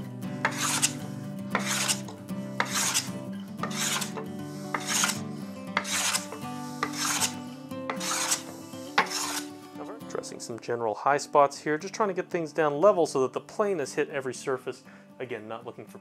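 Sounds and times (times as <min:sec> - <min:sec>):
hand plane rasping on wood: 0:00.4 - 0:09.6.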